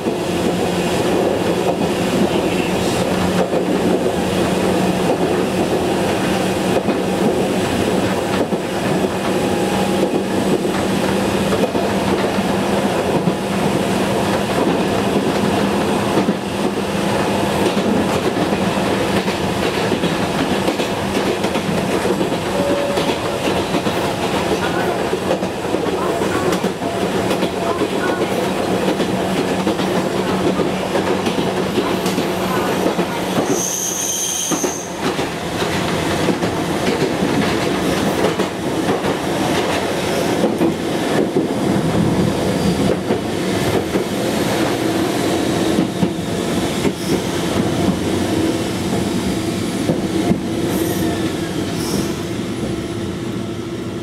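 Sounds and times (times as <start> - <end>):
train wheels rolling on rail: 0.0 - 54.0
high brake squeal: 32.5 - 35.0, 50.7 - 52.2.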